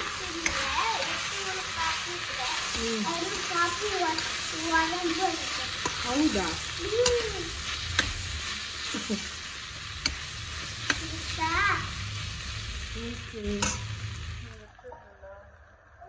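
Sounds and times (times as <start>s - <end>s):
vegetables sizzling in a wok: 0.0s - 16.0s
ladle clicking and scraping a pan: 7.0s - 8.9s, 9.8s - 11.1s, 13.5s - 13.9s.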